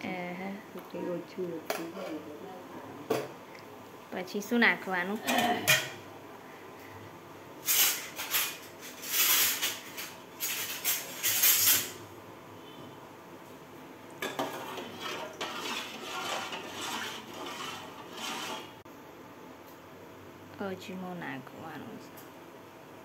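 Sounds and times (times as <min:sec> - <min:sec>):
dishes scraping and clinking: 0:05.2 - 0:06.0, 0:07.6 - 0:12.0, 0:14.2 - 0:18.8
metal dishes and spoon clattering: 0:05.2 - 0:06.0, 0:14.2 - 0:18.7.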